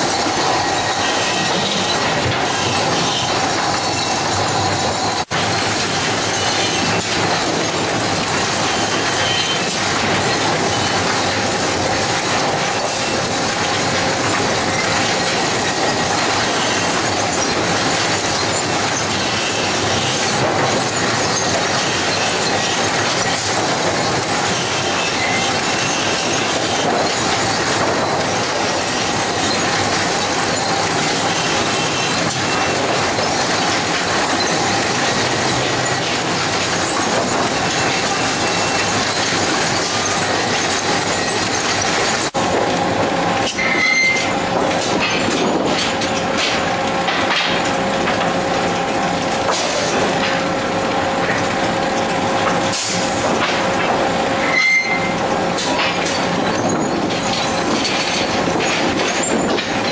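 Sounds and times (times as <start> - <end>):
conveyor chains clattering: 0.0 - 59.9
metallic squealing: 43.5 - 44.4, 54.4 - 59.9.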